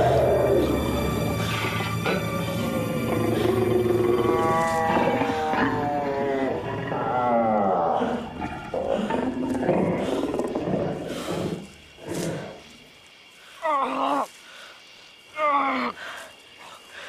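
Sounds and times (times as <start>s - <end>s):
creature growling and snarling: 0.0s - 12.7s.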